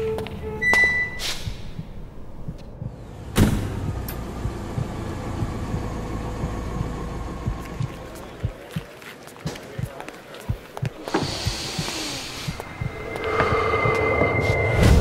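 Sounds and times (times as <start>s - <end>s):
car engine rumbling: 1.6s - 8.6s.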